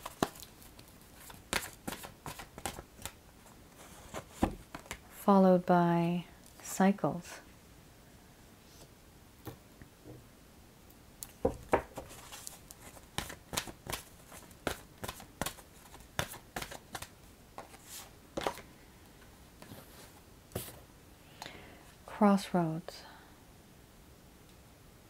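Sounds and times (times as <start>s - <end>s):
cards shuffling: 0.0s - 3.2s, 11.7s - 18.6s.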